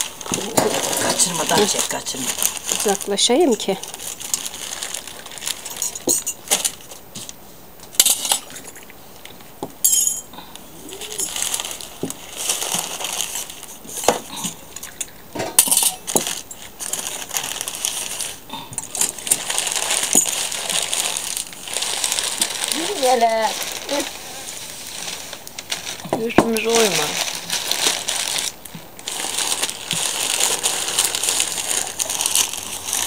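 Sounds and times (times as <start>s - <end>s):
glasses and teapot clinking: 9.8s - 10.3s.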